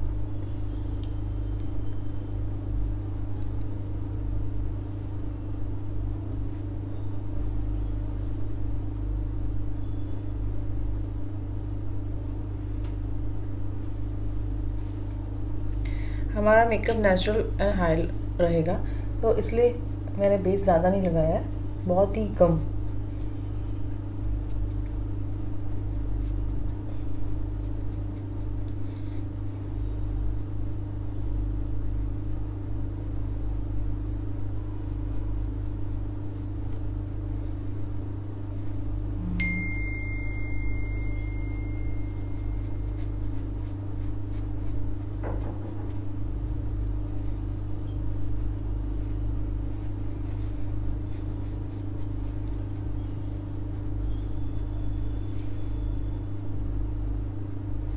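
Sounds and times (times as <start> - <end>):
low room hum: 0.0 - 57.9
thin high tone: 39.2 - 43.2.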